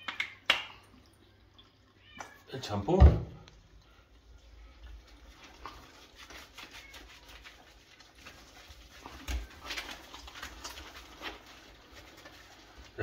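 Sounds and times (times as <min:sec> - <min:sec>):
wet squelching and rubbing: 0:04.7 - 0:13.0.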